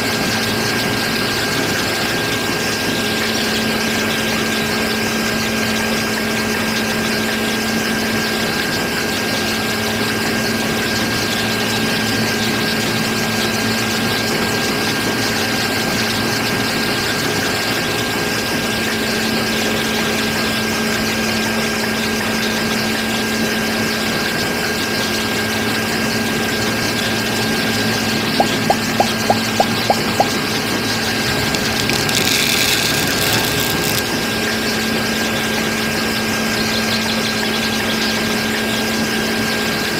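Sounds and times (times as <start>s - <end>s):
electric motor hum and whine: 0.0s - 39.9s
grain mill grinding: 28.0s - 34.3s
quick mechanical ticks: 28.4s - 30.4s, 31.3s - 34.2s.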